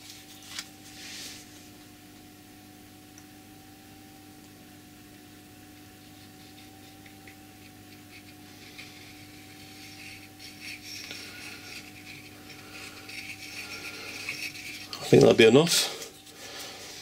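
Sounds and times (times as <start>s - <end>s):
steady background hum: 0.0s - 17.0s
plastic nozzle scratching metal: 6.0s - 15.5s.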